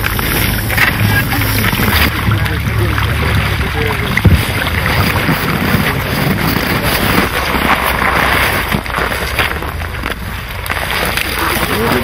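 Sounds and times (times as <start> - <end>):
wind buffeting microphone: 0.0 - 12.0
net scraping and rustling: 3.3 - 12.0.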